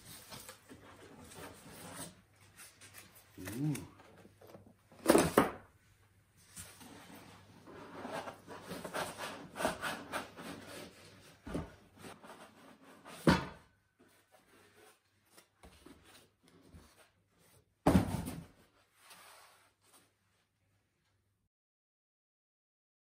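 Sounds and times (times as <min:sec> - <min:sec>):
cardboard rustling and scraping: 0:00.0 - 0:05.4, 0:06.4 - 0:13.3
box thumping: 0:17.9 - 0:18.5.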